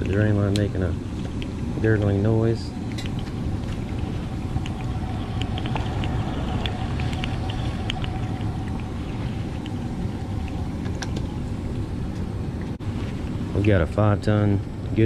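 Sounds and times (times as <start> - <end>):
small pops and trickles: 0.0 - 11.3
drain line gurgling: 0.0 - 12.8
air handler humming: 0.0 - 15.0.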